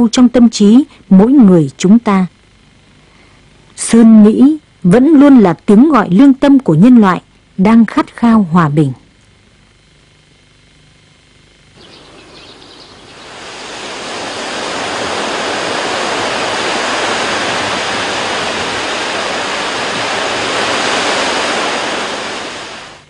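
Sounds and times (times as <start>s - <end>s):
surf breaking on beach: 12.0s - 23.0s.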